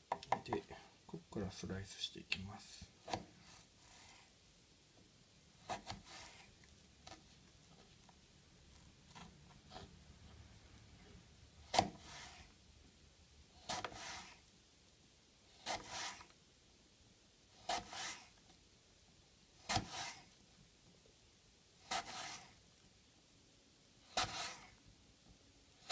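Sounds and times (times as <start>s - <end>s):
knife slicing through apple: 3.0s - 3.7s, 5.6s - 6.6s, 11.6s - 12.5s, 13.6s - 14.4s, 15.6s - 16.3s, 17.6s - 18.4s, 19.6s - 20.3s, 21.8s - 22.6s, 24.1s - 24.8s.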